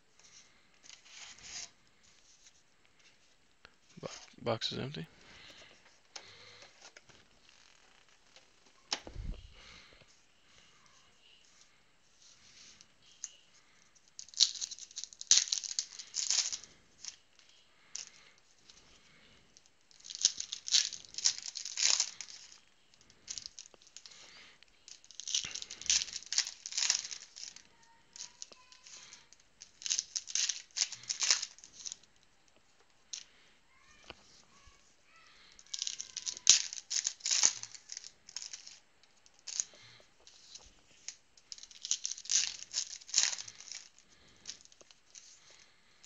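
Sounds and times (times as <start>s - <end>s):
foil wrappers tearing and crinkling: 13.6s - 16.8s, 19.9s - 32.1s, 35.4s - 45.6s.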